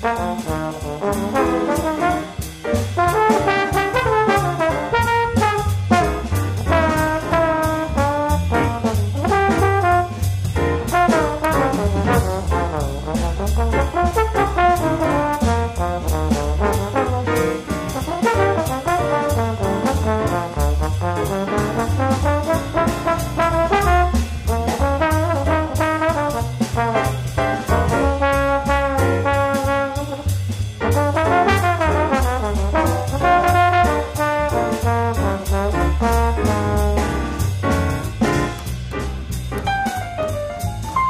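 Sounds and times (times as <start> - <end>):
brass-led instrumental music: 0.0 - 41.0.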